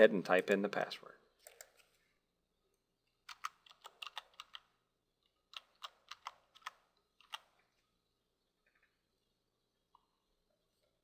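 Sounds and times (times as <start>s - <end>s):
keyboard keys clicking: 3.3s - 4.7s, 5.5s - 7.5s.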